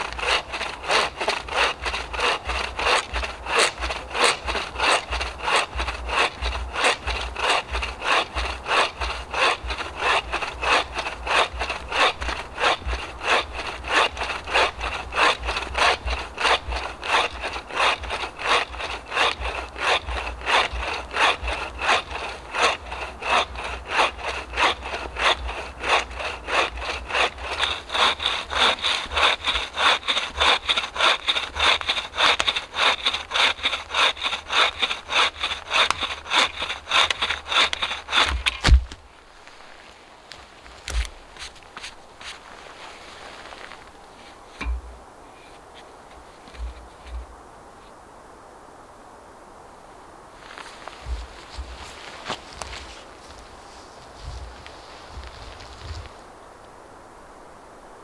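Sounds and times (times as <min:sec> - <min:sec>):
saw cutting wood: 0:00.0 - 0:38.9, 0:51.0 - 0:53.4.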